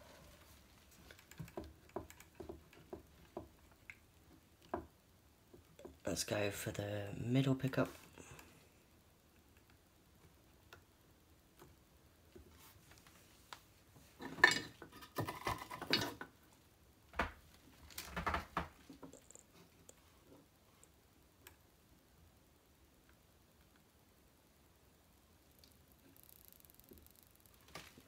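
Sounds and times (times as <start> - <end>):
clicks and rustles of wiring parts: 17.7 - 20.0.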